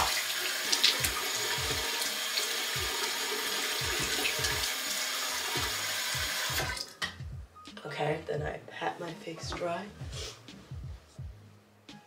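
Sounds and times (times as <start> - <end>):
sink tap running: 0.0 - 6.8.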